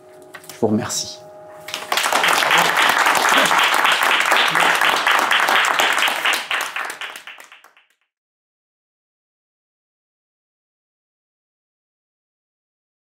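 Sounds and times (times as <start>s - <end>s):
audience applauding: 1.7s - 7.9s.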